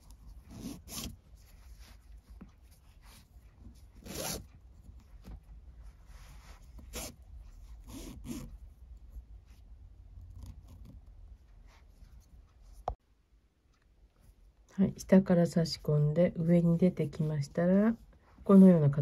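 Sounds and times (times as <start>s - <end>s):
cord sliding against cord: 0.0s - 8.6s.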